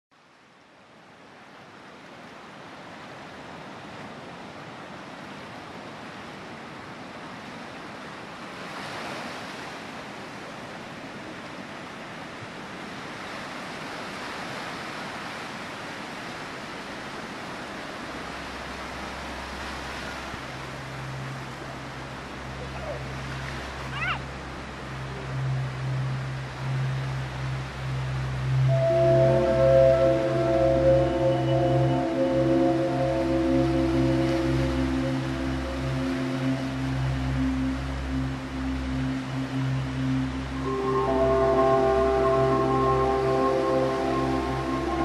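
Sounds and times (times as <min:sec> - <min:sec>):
steady rushing noise: 0:17.0 - 0:45.0
low hum: 0:18.2 - 0:45.0.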